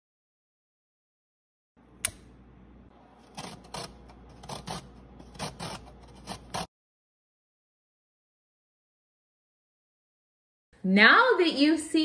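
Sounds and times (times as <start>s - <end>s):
ginger rasping on grater: 3.2s - 6.7s.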